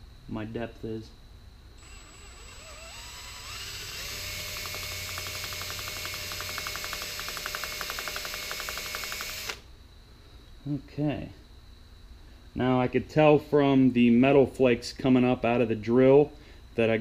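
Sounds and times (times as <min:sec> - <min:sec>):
drill bit ticking in metal: 0:01.8 - 0:09.6
electric drill whining: 0:01.8 - 0:09.6.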